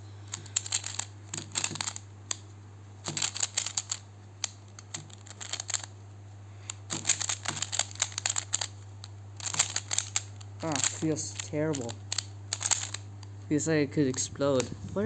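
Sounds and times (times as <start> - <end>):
plastic puzzle clicking: 0.3 - 2.4, 3.0 - 5.9, 6.7 - 8.8, 9.4 - 13.0.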